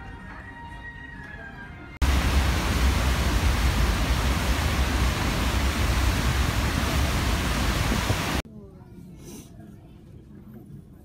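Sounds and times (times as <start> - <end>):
churning water of boat wake: 2.0 - 8.4
wind buffeting microphone: 2.0 - 8.4.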